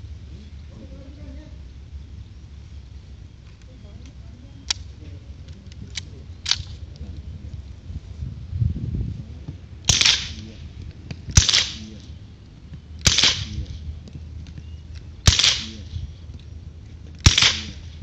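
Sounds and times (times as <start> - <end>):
gunshots: 9.8 - 10.7, 11.3 - 12.1, 13.0 - 13.8, 15.2 - 16.1, 17.2 - 18.0.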